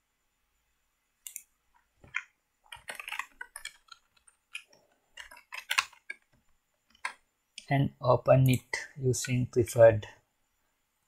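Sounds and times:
keyboard typing: 1.2 - 7.2.

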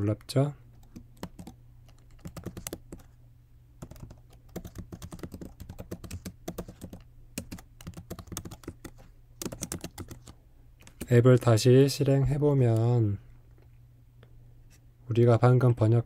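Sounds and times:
computer keyboard typing: 0.2 - 3.2, 3.8 - 11.1.

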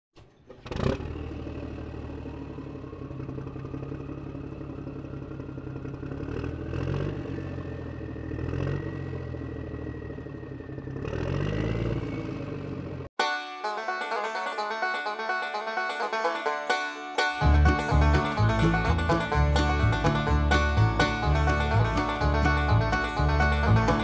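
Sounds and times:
vehicle engine running with whine: 0.2 - 13.1, 17.4 - 24.0.

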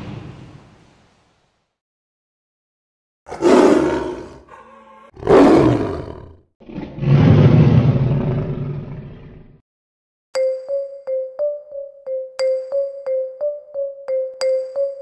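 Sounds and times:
big cat roaring: 3.3 - 9.6.

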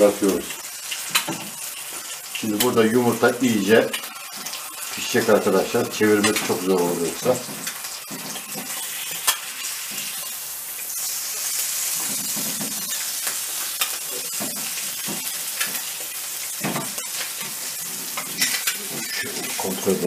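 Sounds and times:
food sizzling in frying pan: 0.0 - 20.0
spatula tapping and scraping pan: 0.9 - 1.6, 7.4 - 10.2, 11.9 - 19.6.

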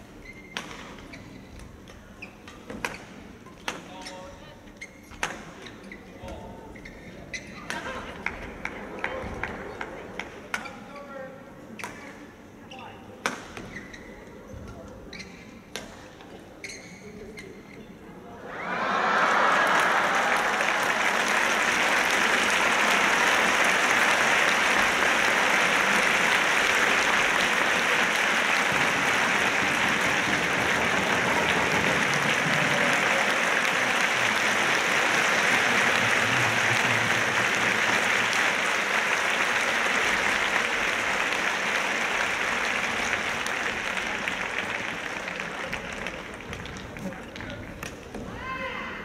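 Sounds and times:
crowd applauding: 18.5 - 47.4.

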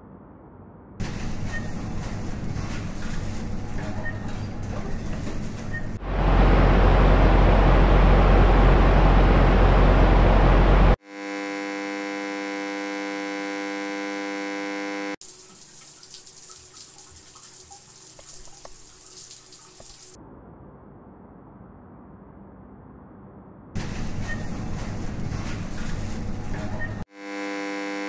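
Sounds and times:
electrical buzzing hum: 6.0 - 16.9, 27.1 - 28.0
shower running: 15.2 - 20.2.

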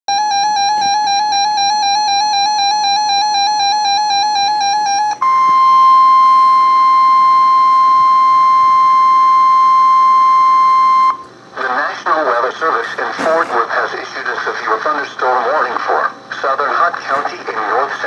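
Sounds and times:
pulsing warbling alarm tone: 0.1 - 11.2
steady warning alarm tone: 0.1 - 11.3.

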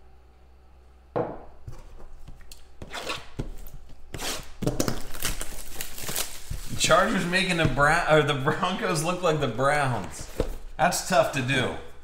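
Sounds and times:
knock on tabletop: 1.2 - 1.5
hands handling cardboard box: 9.9 - 10.8.

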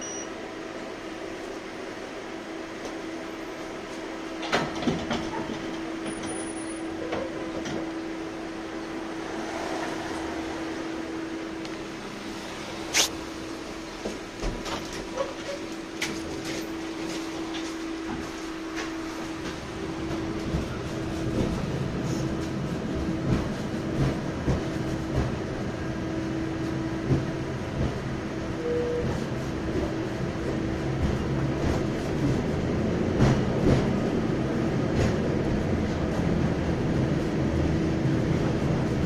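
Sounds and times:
tram interior hum: 0.0 - 39.0.

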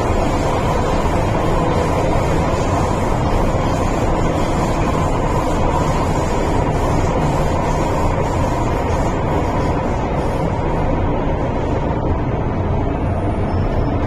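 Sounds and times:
hiss: 0.0 - 10.8
metro train rumbling in tunnel: 0.0 - 14.0.

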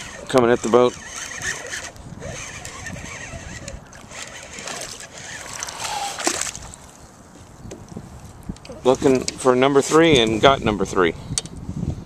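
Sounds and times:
fish splashing and thrashing: 0.0 - 7.1.

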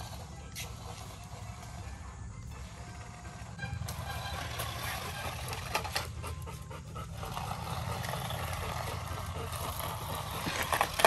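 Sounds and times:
puppy panting: 4.4 - 11.0.

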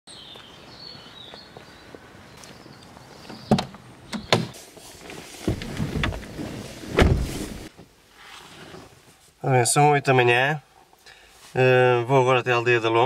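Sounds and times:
car door thudding shut: 5.5 - 7.7.

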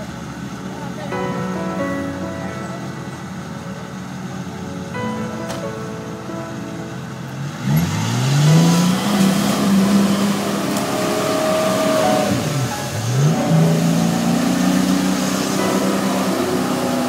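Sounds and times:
engine revving hard: 7.4 - 17.0.

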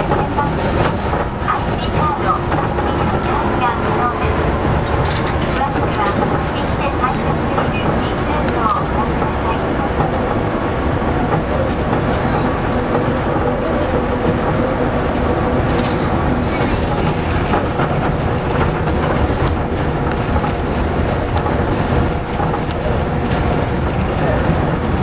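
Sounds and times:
tyres rumbling on concrete: 0.0 - 25.0
steady whine: 0.1 - 20.1.

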